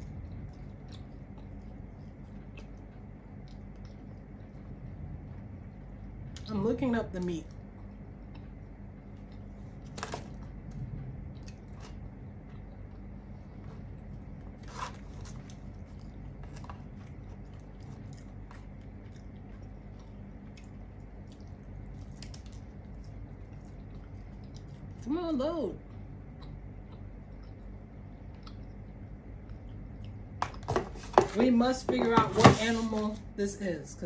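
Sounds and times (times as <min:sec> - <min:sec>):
chewing and mouth sounds: 0:00.0 - 0:06.5, 0:07.2 - 0:30.7
steady low hum: 0:00.0 - 0:34.0.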